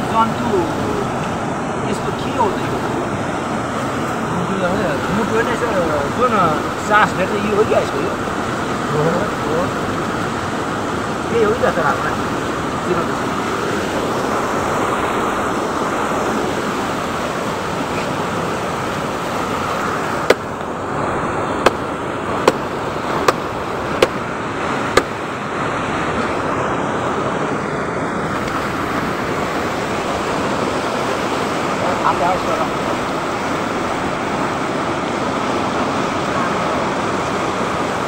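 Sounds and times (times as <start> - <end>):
rushing river water: 0.0 - 38.0
sharp knocks: 20.2 - 20.5, 21.6 - 21.8, 22.4 - 24.2, 24.9 - 25.2.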